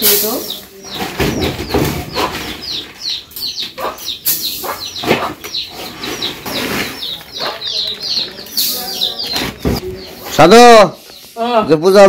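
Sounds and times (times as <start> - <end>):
birds chirping: 0.0 - 12.0
rustling: 5.1 - 10.4.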